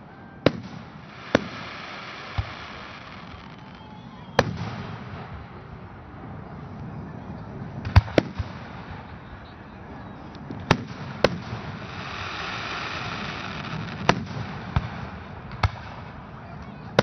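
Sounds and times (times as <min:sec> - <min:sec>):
firework shells bursting: 0:00.5 - 0:05.3.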